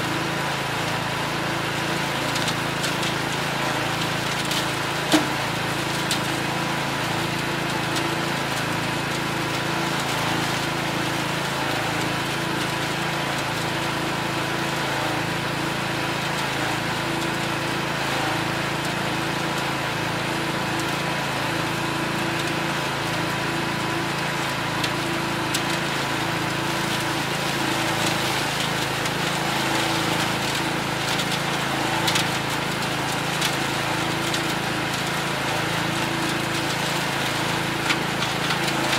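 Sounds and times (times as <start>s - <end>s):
garden tractor engine running: 0.0s - 38.9s
composter chopping dry leaves: 2.0s - 6.6s, 24.2s - 38.9s.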